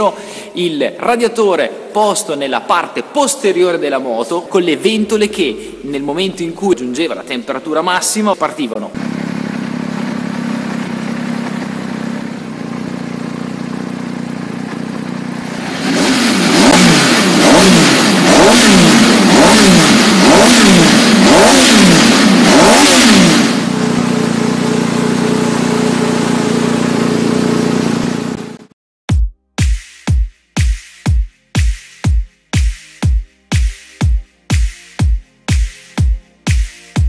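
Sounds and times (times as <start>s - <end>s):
motorcycle engine idling and revving: 8.9s - 28.8s.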